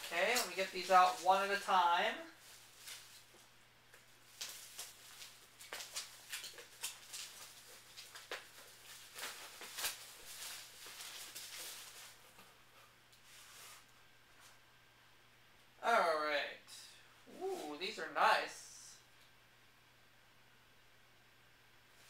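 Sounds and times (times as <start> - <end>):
tapes and packing rustling: 0.0 - 14.6
faint electrical hum: 0.0 - 22.0.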